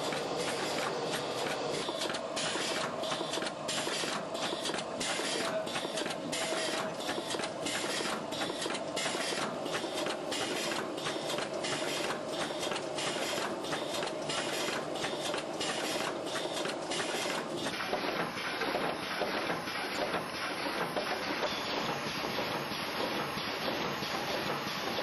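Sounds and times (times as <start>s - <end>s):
machine clicks: 0.0s - 25.0s
machine whirring: 0.0s - 25.0s.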